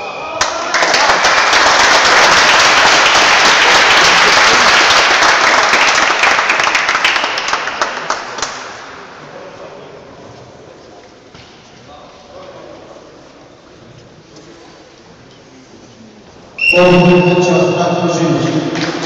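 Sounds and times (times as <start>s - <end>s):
spectators applauding: 0.4s - 9.0s, 18.7s - 19.0s.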